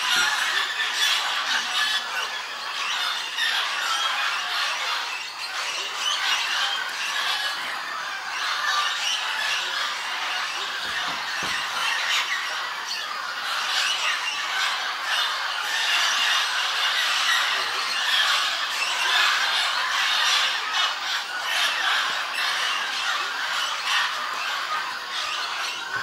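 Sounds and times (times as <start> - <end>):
flock of parrots calling: 0.0 - 26.0.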